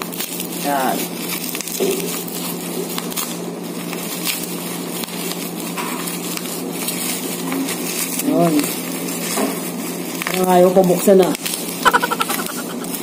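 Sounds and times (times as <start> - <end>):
bubble wrap rustling and crinkling: 0.0 - 13.0.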